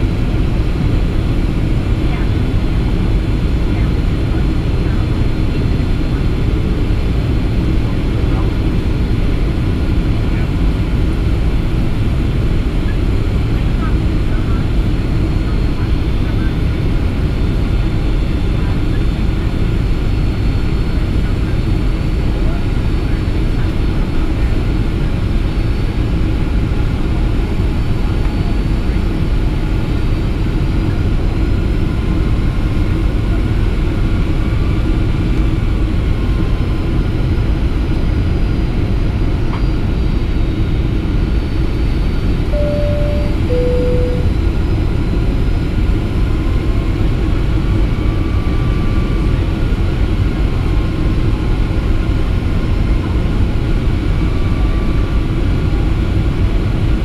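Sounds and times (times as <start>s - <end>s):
airliner cabin rumble: 42.0s - 57.0s
two-note cabin chime: 42.6s - 44.4s.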